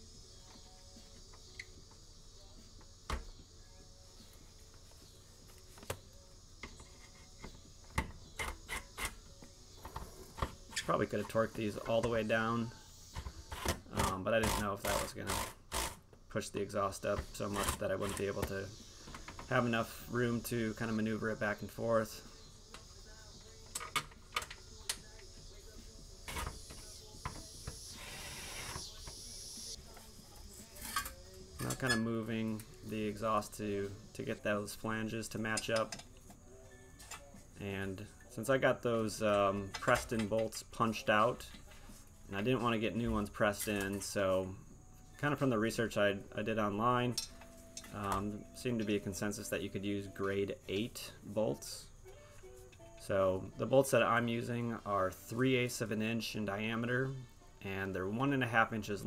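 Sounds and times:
metal scraping hiss: 4.2 - 16.0, 16.8 - 36.0
tools clinking on metal: 47.1 - 48.1.

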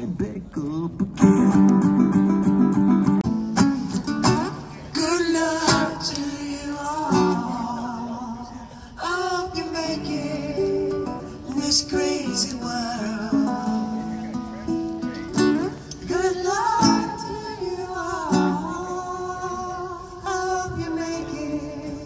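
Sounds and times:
acoustic guitar strummed: 1.1 - 8.0, 9.2 - 22.0
person singing: 4.9 - 14.0, 16.0 - 22.0.

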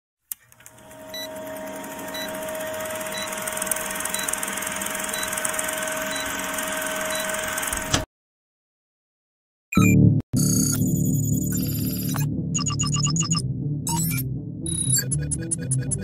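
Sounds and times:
film projector whirring clatter: 0.3 - 8.1.

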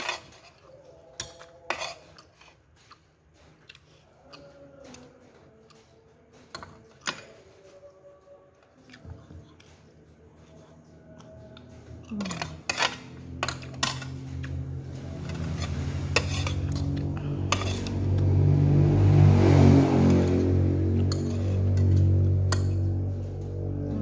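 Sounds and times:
spoon and fork scraping tray: 0.0 - 3.6, 12.2 - 18.1, 21.0 - 22.8
low hum: 10.9 - 24.0.

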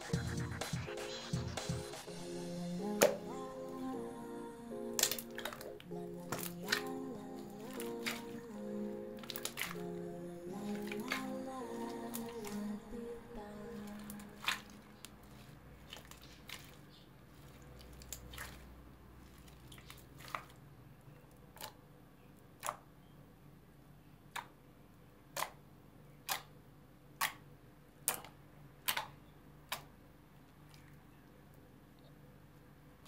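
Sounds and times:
slime popping: 5.0 - 7.0, 7.6 - 8.4, 9.2 - 10.0, 10.6 - 12.7, 13.8 - 16.8, 17.4 - 20.6, 28.0 - 29.9.

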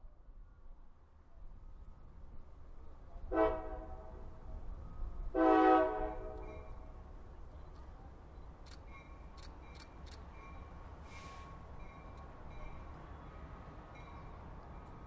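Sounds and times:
short hiss: 11.0 - 11.6.

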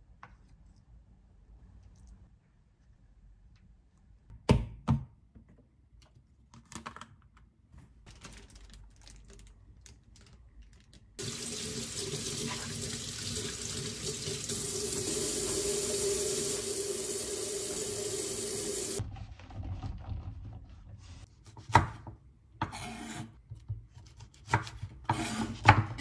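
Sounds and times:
plastic bag crinkling: 8.1 - 11.1
tap water running into sink: 11.2 - 19.0.

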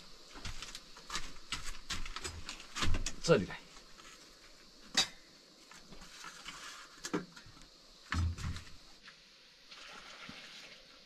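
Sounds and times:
objects knocking and clunking: 6.4 - 8.7
dull thump: 8.1 - 8.8.

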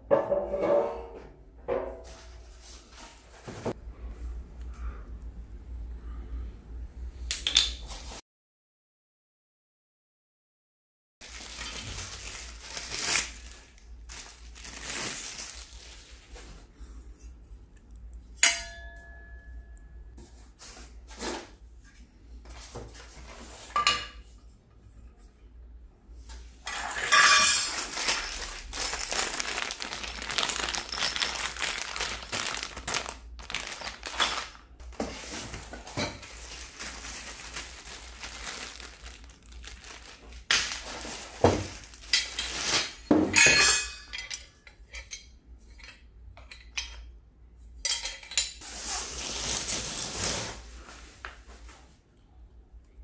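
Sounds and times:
plastic packaging rustling: 11.2 - 16.7, 26.8 - 43.2, 48.6 - 51.8
metal poles clinking: 18.4 - 19.8, 26.7 - 29.3, 42.1 - 47.1, 47.8 - 48.6.

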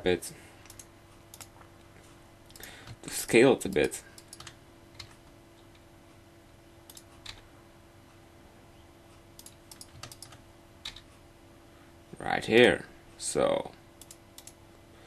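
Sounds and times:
faint steady hum: 0.0 - 15.0
keyboard and mouse clicks: 0.6 - 1.6, 2.5 - 3.0, 3.7 - 5.3, 6.9 - 7.4, 9.4 - 11.1, 14.0 - 14.6.

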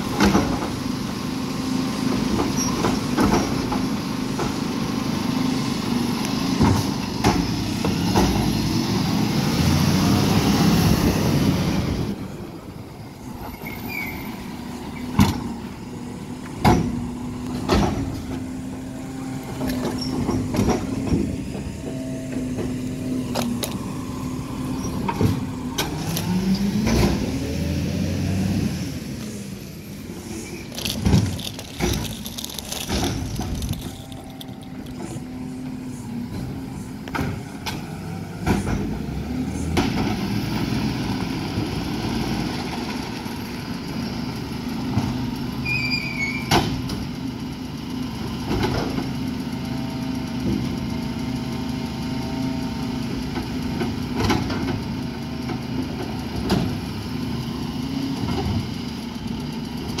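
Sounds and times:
diesel engine running: 0.0 - 60.0
high squeal: 13.4 - 14.5, 45.6 - 46.5.

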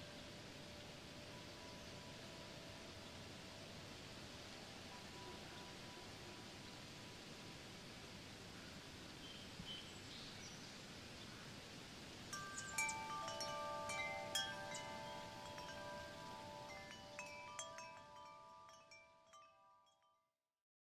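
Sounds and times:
faint steady hiss: 0.0 - 20.0
chimes ringing: 12.3 - 20.2.

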